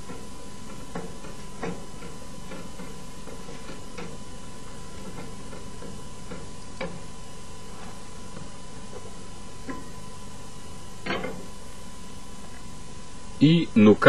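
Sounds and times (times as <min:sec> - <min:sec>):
steady hiss: 0:00.0 - 0:14.0
thin constant tone: 0:00.0 - 0:14.0.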